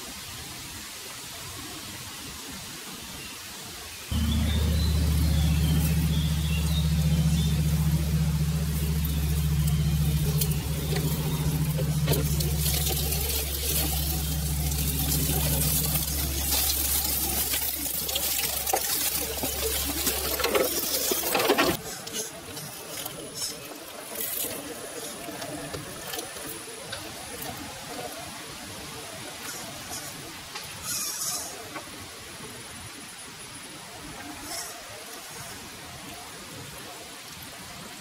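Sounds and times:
low motor hum: 0:04.1 - 0:21.9
dry leaves and twigs crackling: 0:04.1 - 0:27.6.

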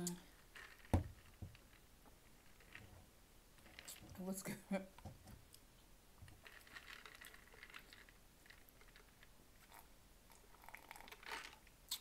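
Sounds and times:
slurp through a straw: 0:06.6 - 0:12.0.

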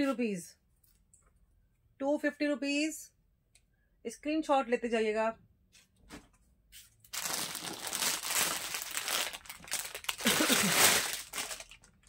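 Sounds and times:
plastic packaging crinkling: 0:07.0 - 0:12.0.

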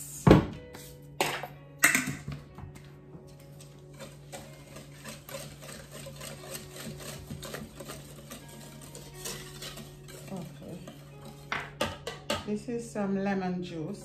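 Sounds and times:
whisk beating in a bowl: 0:03.6 - 0:12.5.

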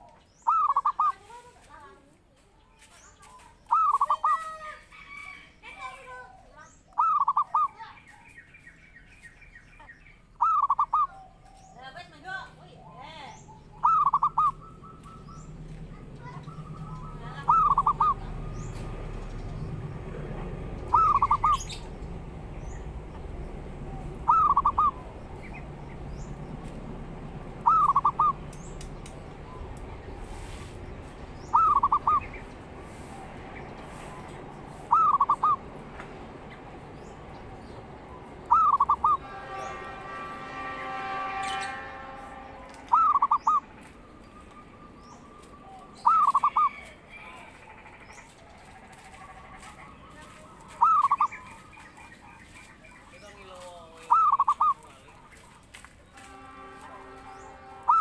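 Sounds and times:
dove cooing: 0:00.4 - 0:01.3, 0:03.7 - 0:04.4, 0:06.0 - 0:07.8, 0:10.4 - 0:11.6, 0:12.7 - 0:18.8, 0:20.8 - 0:22.0, 0:23.8 - 0:25.7, 0:27.6 - 0:28.5, 0:31.5 - 0:32.5, 0:34.8 - 0:35.6, 0:38.4 - 0:39.6, 0:42.9 - 0:43.7, 0:45.6 - 0:46.8, 0:50.6 - 0:51.6, 0:54.0 - 0:54.9.

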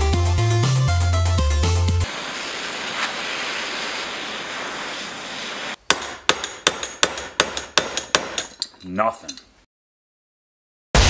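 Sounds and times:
propane torch flame hissing: 0:02.0 - 0:05.8
hammer striking metal: 0:05.9 - 0:08.8.

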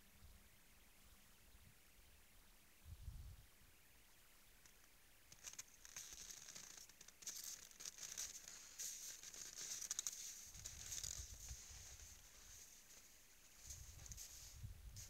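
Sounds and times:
hooves crunching in crusted snow: 0:05.4 - 0:15.0.

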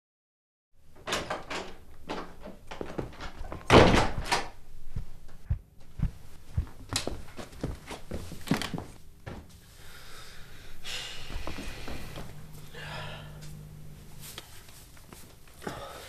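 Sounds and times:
small knocks and bumps: 0:02.0 - 0:04.4
door closing thud: 0:03.2 - 0:04.6.

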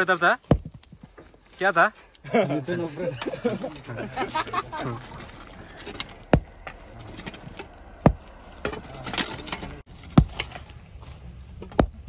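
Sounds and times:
sledgehammer striking stones: 0:00.4 - 0:01.0, 0:04.8 - 0:10.6, 0:11.6 - 0:12.0.

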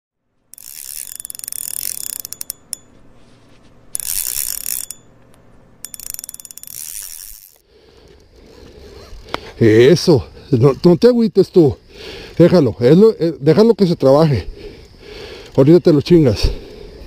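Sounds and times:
ratchet clicking fast: 0:00.5 - 0:02.9, 0:04.0 - 0:05.0, 0:05.8 - 0:07.6.

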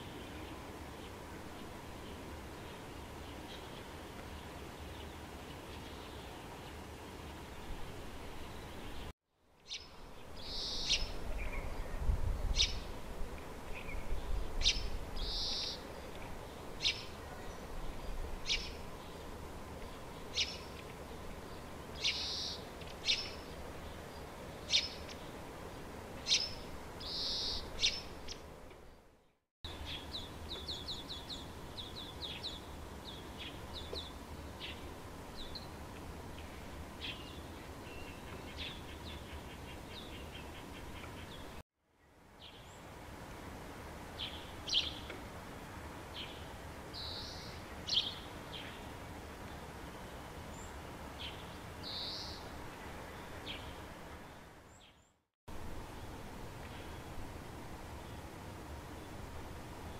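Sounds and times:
small birds calling: 0:08.4 - 0:12.0, 0:13.7 - 0:25.4, 0:26.2 - 0:28.4, 0:29.7 - 0:35.7, 0:50.5 - 0:53.8.

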